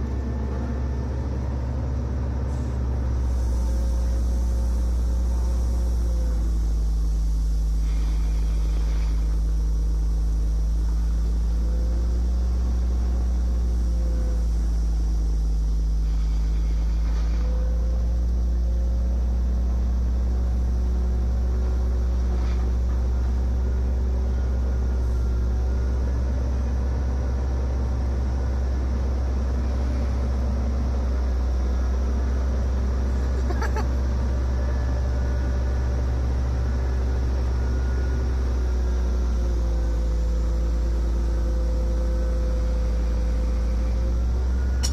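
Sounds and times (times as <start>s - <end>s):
excavator diesel engine running: 0.0s - 44.9s.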